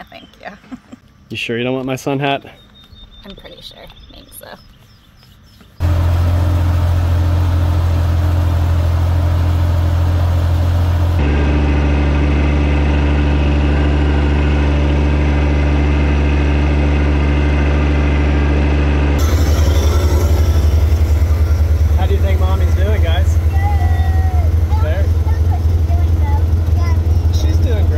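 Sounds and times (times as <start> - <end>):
tractor diesel engine running: 5.8 - 27.9.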